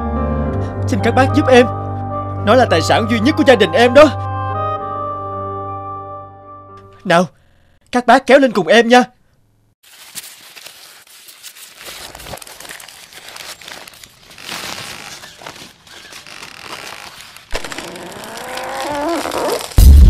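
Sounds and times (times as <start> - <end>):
rope scraping over ground: 10.6 - 19.8.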